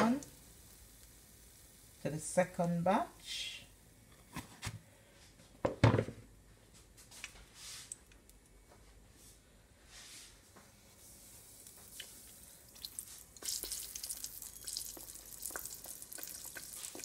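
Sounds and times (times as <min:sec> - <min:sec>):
dough sizzling in oil: 0:00.0 - 0:04.0, 0:10.0 - 0:17.0
hot oil crackling: 0:00.0 - 0:04.0, 0:10.9 - 0:17.0.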